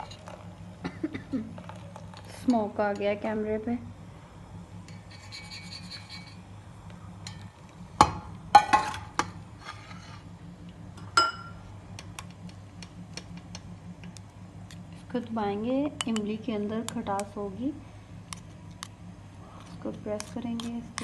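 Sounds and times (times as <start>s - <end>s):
spoon scraping metal strainer: 4.9s - 6.4s, 19.6s - 21.0s.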